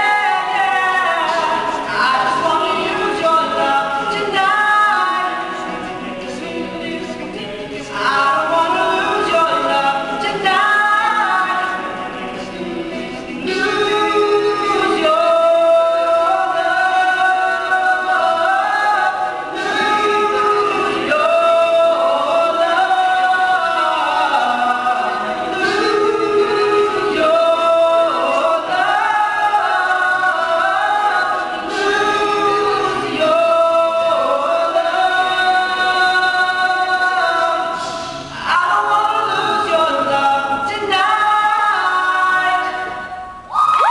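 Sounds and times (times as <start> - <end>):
male a cappella group singing: 0.0 - 43.9.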